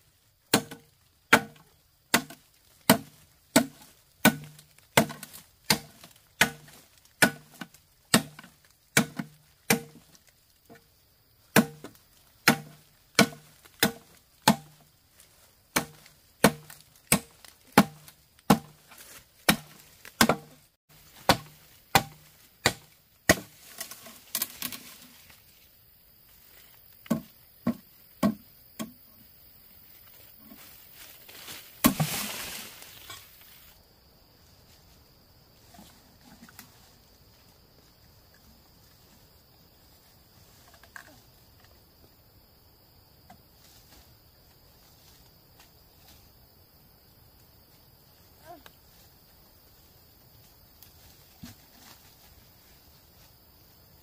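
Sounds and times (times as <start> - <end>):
faint steady hiss: 0.0 - 54.0
blade chopping on wood: 0.5 - 10.1, 11.5 - 14.8, 15.7 - 18.8, 19.4 - 24.0.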